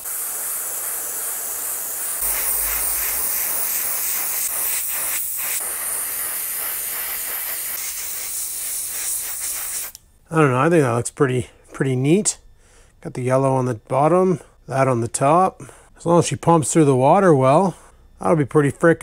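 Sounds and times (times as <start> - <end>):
airbrush spraying hiss: 0.0 - 10.0.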